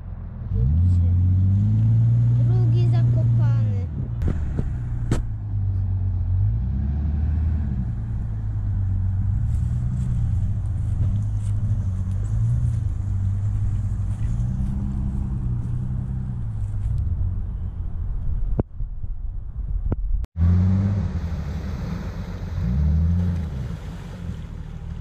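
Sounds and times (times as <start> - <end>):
engine revving: 0.0 - 17.8, 20.4 - 25.0
sharp knock: 4.2 - 5.4.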